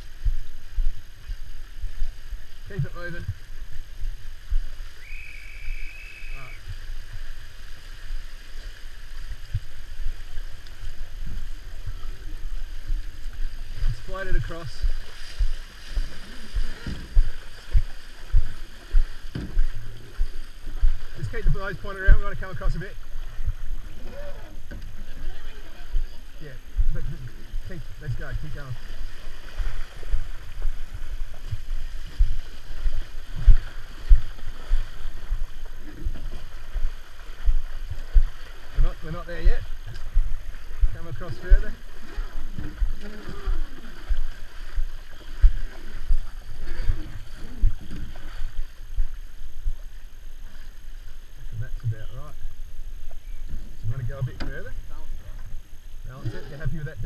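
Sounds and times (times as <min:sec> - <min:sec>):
wind noise: 0:00.0 - 0:49.8
water washing: 0:00.0 - 0:57.0
low thumps: 0:13.7 - 0:21.6.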